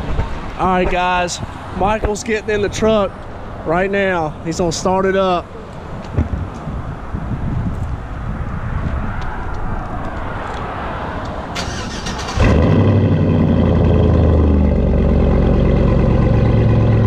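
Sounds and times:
engine starter cranking: 0:11.6 - 0:12.7
engine idling loudly: 0:12.4 - 0:17.0.

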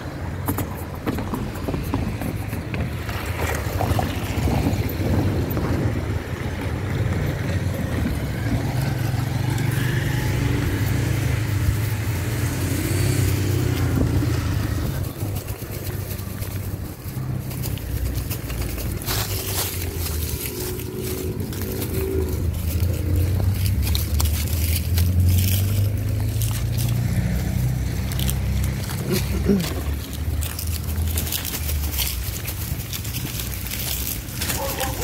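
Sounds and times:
car engines and tyres: 0:00.0 - 0:35.0.

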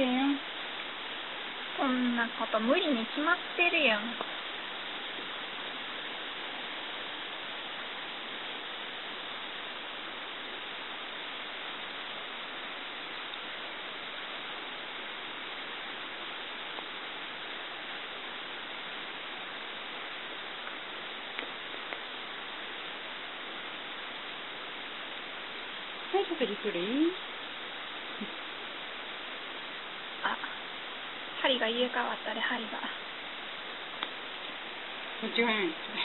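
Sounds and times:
background hiss: 0:00.0 - 0:36.0.

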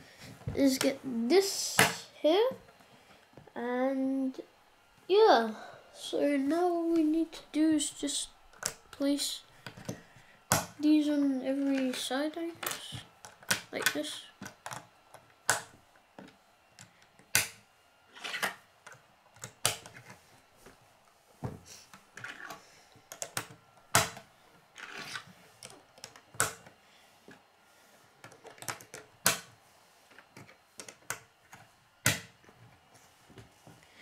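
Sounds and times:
plastic pieces snapping: 0:12.6 - 0:15.7, 0:18.2 - 0:20.1, 0:22.2 - 0:24.2, 0:24.8 - 0:26.8, 0:28.2 - 0:29.5.

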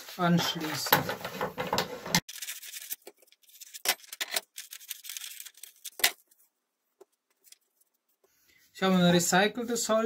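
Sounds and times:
paper rustling and crackling: 0:02.2 - 0:06.4.

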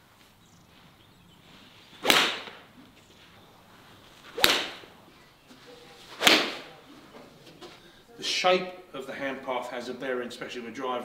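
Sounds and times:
golf club striking ball: 0:02.0 - 0:02.6, 0:04.4 - 0:04.9.

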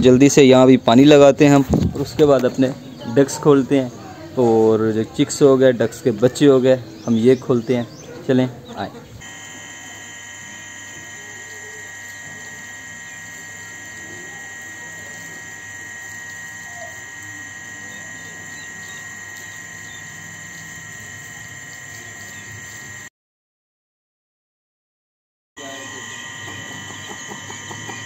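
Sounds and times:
electrical hum with high whine: 0:09.2 - 0:23.1, 0:25.6 - 0:28.0.

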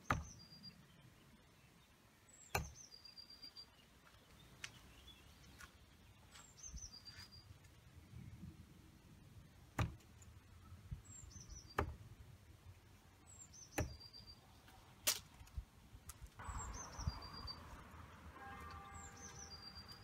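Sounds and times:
bird chirping: 0:00.0 - 0:08.4, 0:10.2 - 0:12.1, 0:12.7 - 0:15.1, 0:16.4 - 0:20.0
darts thudding into dartboard: 0:09.8 - 0:10.0.

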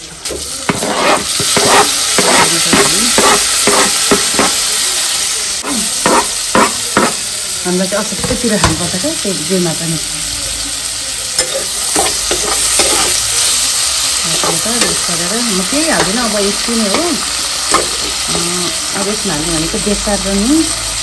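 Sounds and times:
vegetables sizzling in hot oil: 0:00.0 - 0:21.0
steel spoon scraping pan: 0:00.3 - 0:04.6, 0:05.6 - 0:07.2, 0:11.4 - 0:15.1, 0:16.0 - 0:18.4.

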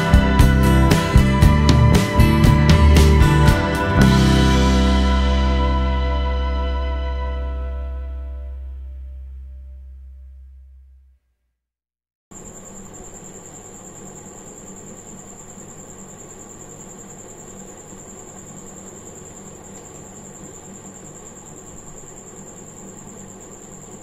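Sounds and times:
high-pitched whine: 0:00.0 - 0:10.0
room hum and hiss: 0:12.3 - 0:24.0.

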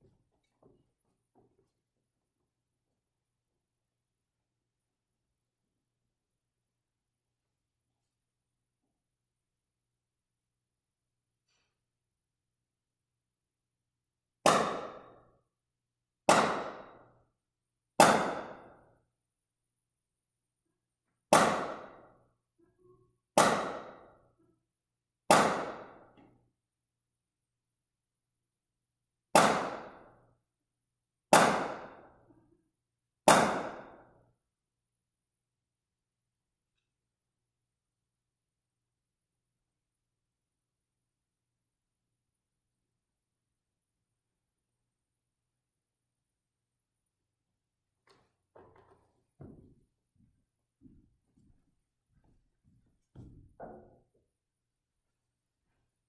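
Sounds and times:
loud bangs echoing in a church: 0:25.3 - 0:26.2, 0:29.4 - 0:30.2, 0:31.3 - 0:32.1.

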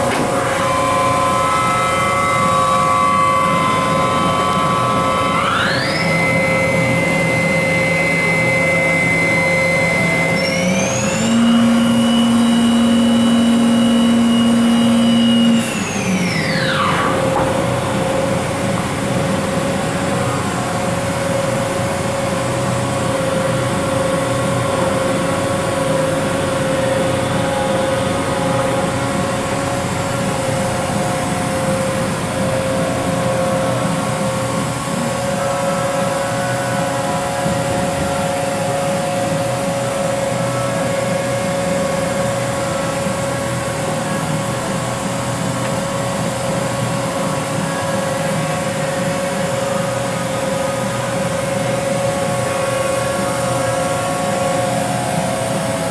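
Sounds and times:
machine spindle whining: 0:00.0 - 0:55.9
machine steady hum: 0:00.0 - 0:55.9.

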